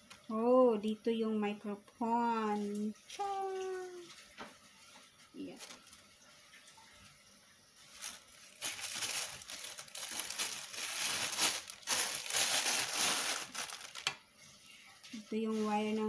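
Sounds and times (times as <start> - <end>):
plastic bag crinkling: 5.4 - 6.0, 7.8 - 14.3.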